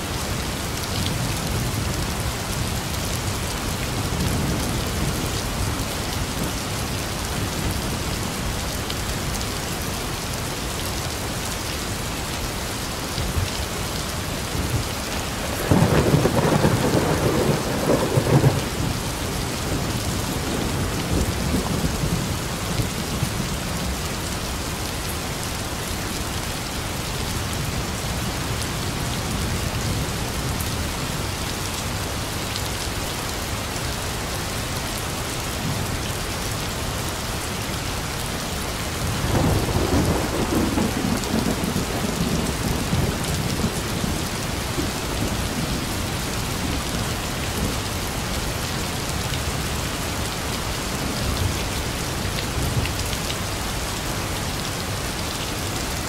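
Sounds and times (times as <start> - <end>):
heavy rain falling: 0.0 - 56.0
thunder rumbling: 15.4 - 22.8, 39.1 - 47.0.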